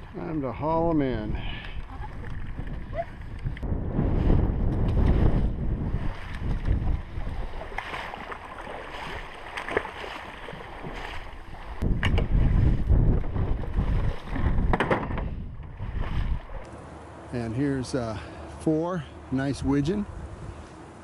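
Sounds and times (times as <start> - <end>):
wind buffeting microphone: 0.0 - 16.7.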